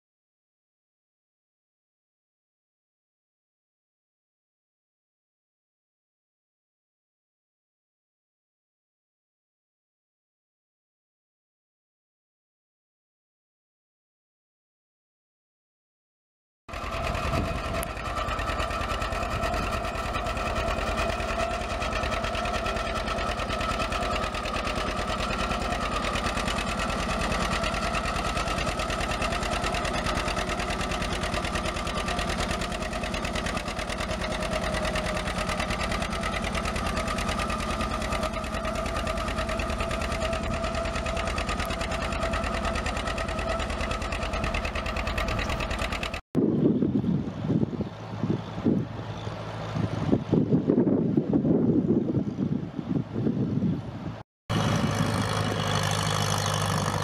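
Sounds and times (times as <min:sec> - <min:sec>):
tractor engine running under load: 0:16.7 - 0:46.2, 0:46.8 - 0:53.3, 0:54.0 - 0:57.0.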